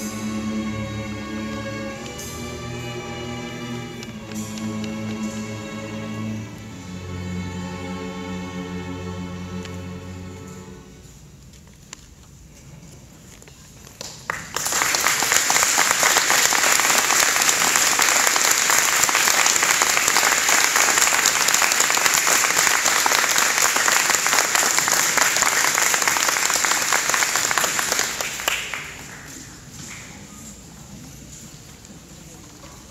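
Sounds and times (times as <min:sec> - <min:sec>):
audience applause: 0:14.2 - 0:29.7.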